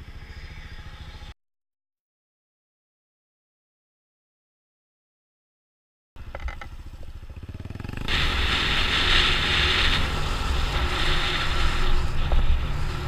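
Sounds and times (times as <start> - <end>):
motorcycle engine running: 6.2 - 13.0
wind rushing noise: 8.1 - 13.0.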